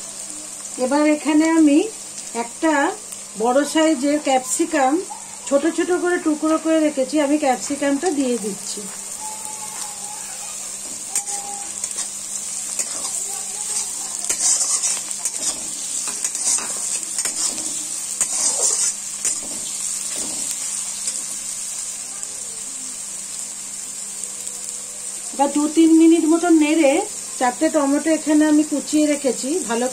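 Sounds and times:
vegetables sizzling in oil: 0:00.0 - 0:29.9
metal spatula scraping pan: 0:10.9 - 0:20.6.

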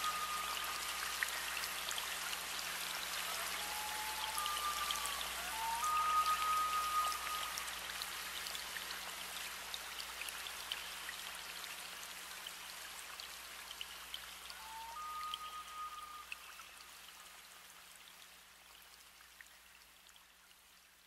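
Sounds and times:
thin whistle-like tone: 0:00.0 - 0:02.2, 0:03.2 - 0:08.0, 0:14.5 - 0:17.1.

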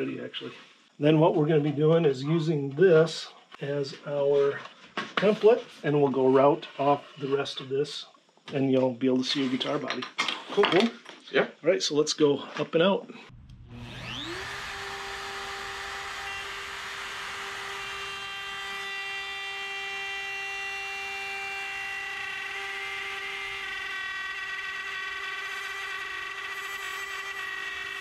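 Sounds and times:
wood router high whine: 0:13.3 - 0:28.0.

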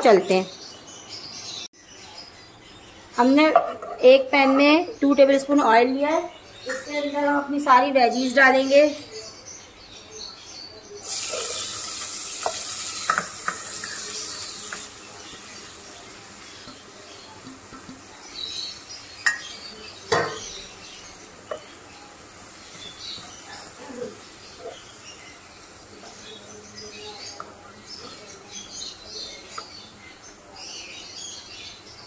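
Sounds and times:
vegetables sizzling in hot oil: 0:11.0 - 0:28.2
spatula stirring and knocking pan: 0:12.4 - 0:18.1.

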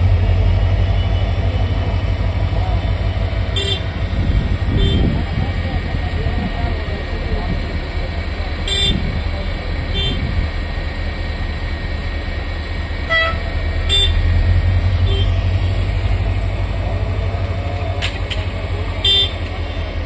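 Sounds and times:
diesel engine low rumble: 0:00.0 - 0:20.0
warning horn short toots: 0:03.5 - 0:04.0, 0:04.7 - 0:05.3, 0:08.7 - 0:09.2, 0:09.9 - 0:10.3, 0:13.1 - 0:14.3, 0:15.0 - 0:15.4, 0:19.0 - 0:19.5.

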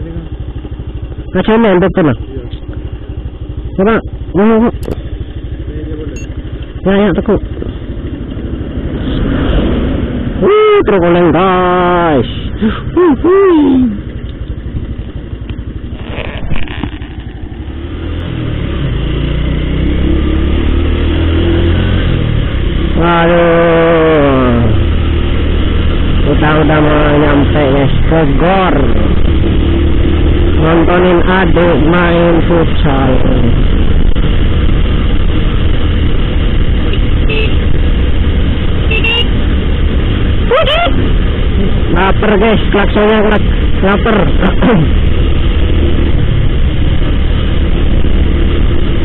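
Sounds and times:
motorcycle engine running: 0:00.0 - 0:49.0
wind and road rush: 0:00.0 - 0:49.0
man calling out: 0:03.7 - 0:04.8, 0:10.4 - 0:14.0, 0:23.0 - 0:24.9, 0:40.4 - 0:41.0, 0:41.6 - 0:45.0.

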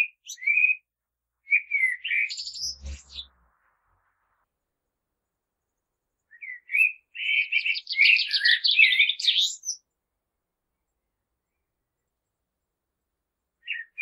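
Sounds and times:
blackbird singing: 0:00.0 - 0:00.8, 0:01.4 - 0:03.3, 0:06.3 - 0:09.8, 0:13.6 - 0:14.0.

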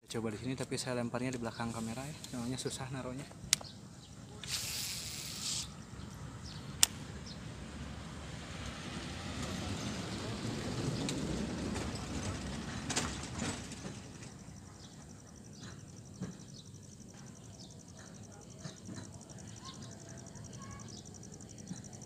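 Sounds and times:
sharp clicks: 0:06.5 - 0:07.0.

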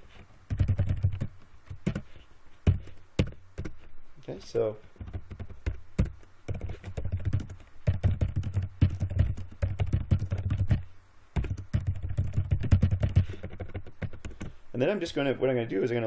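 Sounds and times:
typing on computer keyboard: 0:00.5 - 0:01.3, 0:05.0 - 0:10.8, 0:11.4 - 0:14.5.

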